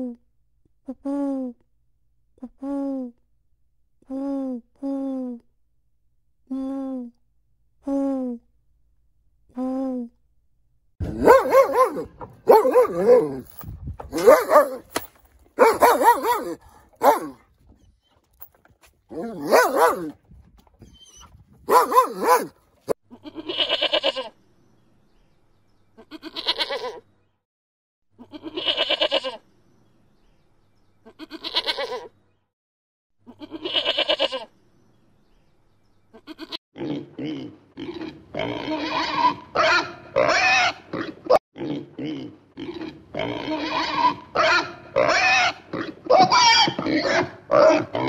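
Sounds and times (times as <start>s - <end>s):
dog barking: 11.1s - 13.4s, 14.1s - 14.8s, 15.6s - 17.4s, 19.2s - 20.1s, 21.7s - 22.6s, 47.2s - 47.9s
goat bleating: 23.1s - 24.3s, 26.0s - 27.0s, 28.2s - 29.4s, 31.0s - 32.1s, 33.3s - 34.5s, 36.1s - 36.6s, 42.6s - 48.0s.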